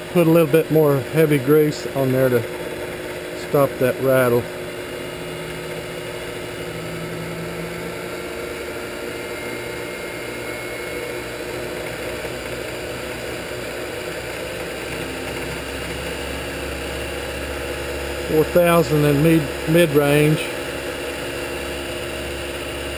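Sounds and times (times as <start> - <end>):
machine motor hum and whir: 0.0 - 22.9.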